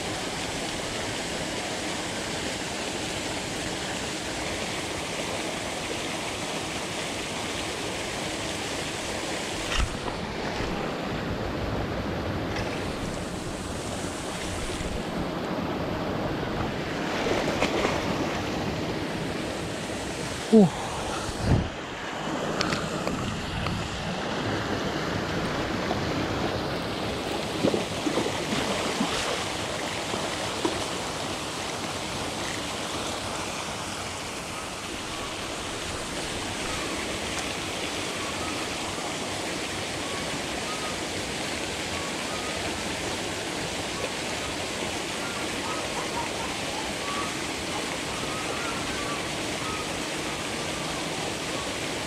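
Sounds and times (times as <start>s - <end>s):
paddlewheel aerator splashing water: 12.4s - 20.3s, 22.3s - 52.0s.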